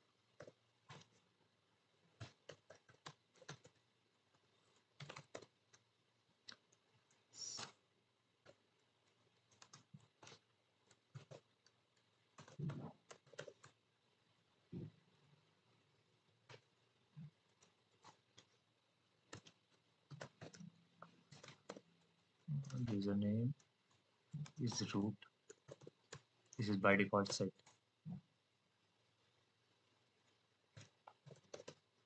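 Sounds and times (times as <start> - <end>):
typing on a computer keyboard: 0.2 - 1.2, 2.1 - 3.9, 4.7 - 7.8, 8.4 - 13.8, 16.4 - 27.8, 30.2 - 32.0.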